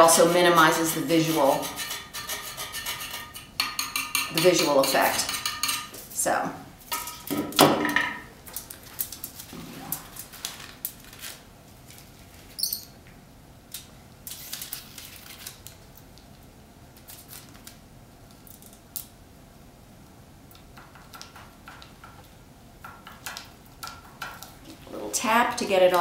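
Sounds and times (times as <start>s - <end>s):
tools tapping on foil: 1.8s - 6.0s, 20.6s - 24.6s
paper crinkling: 8.5s - 12.6s, 14.3s - 16.0s.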